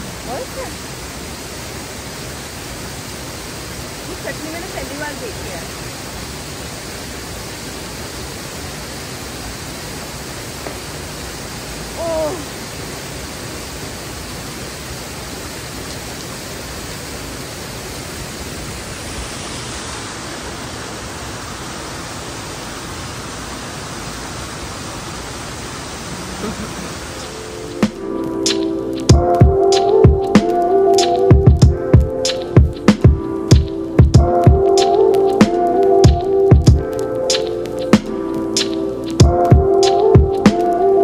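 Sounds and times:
waterfall rushing: 0:00.0 - 0:41.0
brief voice: 0:12.0 - 0:12.5.

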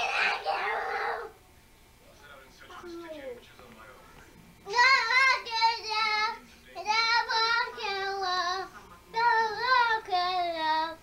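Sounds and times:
girl singing unaccompanied: 0:04.6 - 0:11.0.

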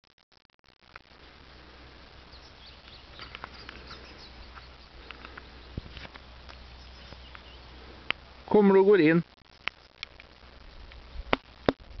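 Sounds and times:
low steady background noise: 0:00.8 - 0:12.0
distant small birds chirping: 0:01.2 - 0:08.5.

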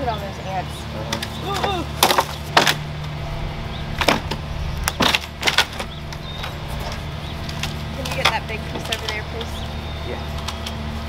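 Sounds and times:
steady low hum: 0:00.0 - 0:11.0
wood cracking and knocking: 0:04.0 - 0:09.6.

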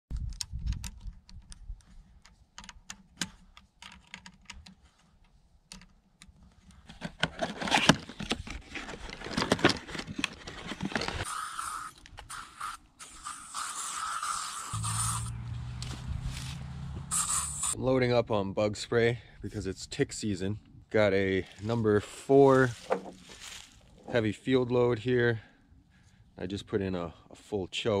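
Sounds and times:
aerosol can hissing: 0:11.3 - 0:15.4, 0:17.0 - 0:17.8.

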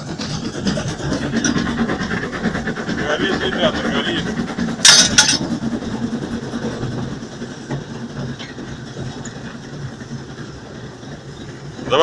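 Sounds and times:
steam locomotive running rumble: 0:00.0 - 0:12.0.

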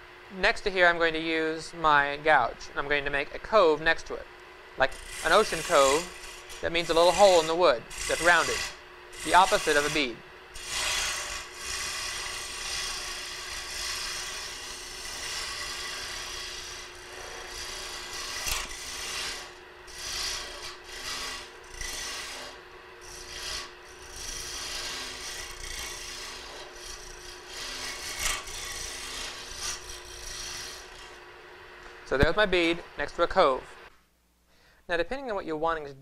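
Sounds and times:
lathe motor hum: 0:04.2 - 0:33.0
gouge scraping spinning wood: 0:04.8 - 0:32.8.

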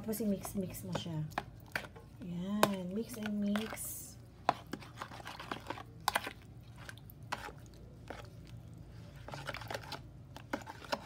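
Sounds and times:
fork stirring in plastic bowl: 0:00.0 - 0:11.0.

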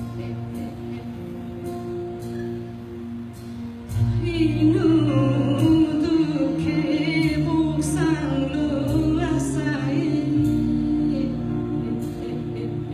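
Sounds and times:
woman singing: 0:00.0 - 0:02.7, 0:03.9 - 0:12.9
acoustic guitars: 0:00.0 - 0:12.9
double bass and cello: 0:00.0 - 0:12.9.

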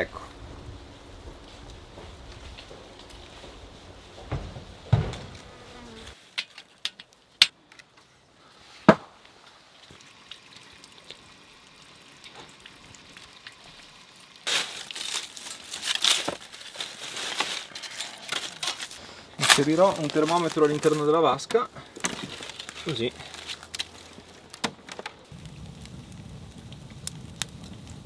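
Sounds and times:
fly buzzing: 0:04.9 - 0:06.2
twigs and leaves crackling: 0:12.2 - 0:28.0.

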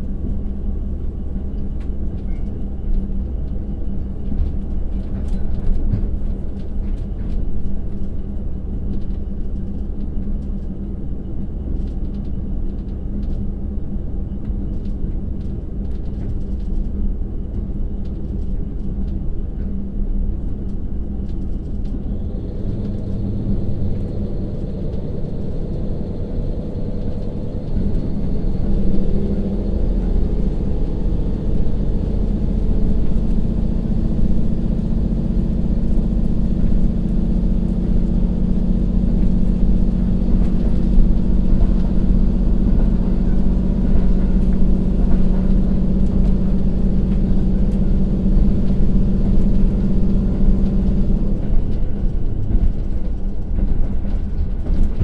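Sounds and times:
diesel railcar engine: 0:00.0 - 0:55.0
rail running noise: 0:00.0 - 0:55.0.

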